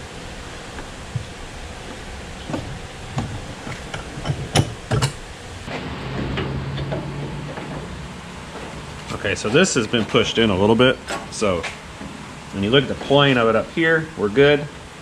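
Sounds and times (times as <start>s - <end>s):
steady low hum: 0.0s - 15.0s
metal clanks and clicks: 2.5s - 5.2s.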